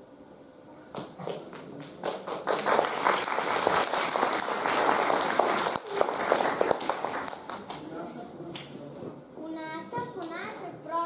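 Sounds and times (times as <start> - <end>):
audience applauding: 1.5 - 7.9.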